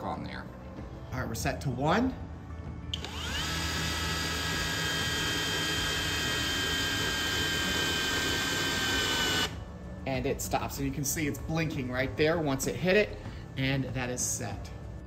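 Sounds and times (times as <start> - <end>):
cordless drill whine: 2.9 - 9.6.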